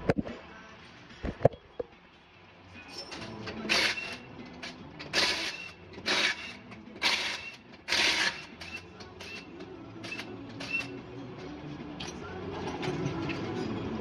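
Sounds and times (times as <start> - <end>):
impact wrench zipping: 3.1 - 9.4.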